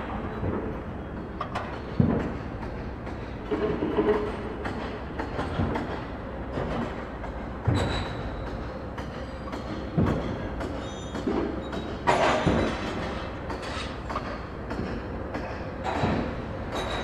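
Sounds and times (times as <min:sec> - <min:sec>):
metal objects clattering and clanking: 0:15.9 - 0:17.0.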